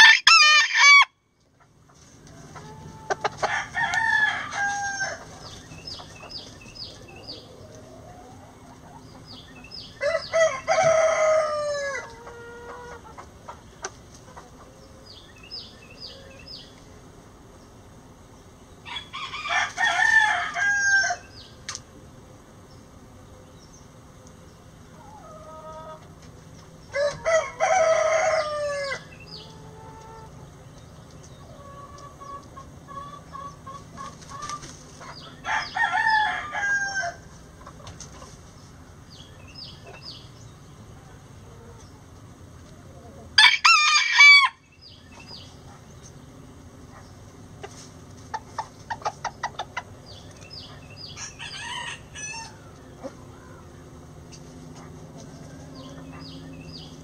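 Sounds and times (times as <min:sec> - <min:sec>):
rooster crowing: 0:00.0 - 0:01.2, 0:02.8 - 0:05.2, 0:10.0 - 0:12.8, 0:18.9 - 0:21.3, 0:26.9 - 0:29.1, 0:35.4 - 0:37.3, 0:43.4 - 0:44.7, 0:51.1 - 0:52.7
hen clucking: 0:01.5 - 0:16.6, 0:24.8 - 0:38.5, 0:45.2 - 0:57.0.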